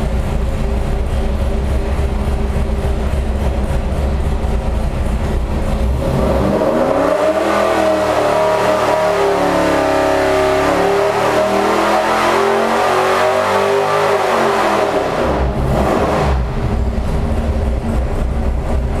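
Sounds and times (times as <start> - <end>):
engine revving under load: 5.7 - 18.3.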